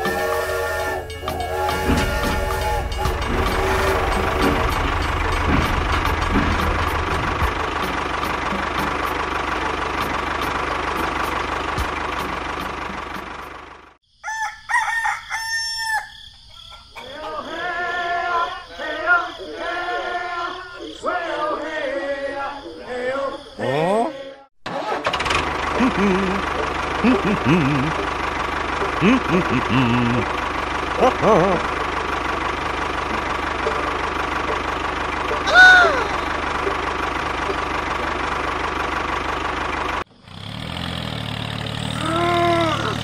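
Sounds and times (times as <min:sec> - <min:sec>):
rooster crowing: 0:14.1 - 0:18.6, 0:35.5 - 0:36.4
chicken clucking: 0:16.3 - 0:18.6, 0:27.0 - 0:28.1, 0:28.9 - 0:30.3.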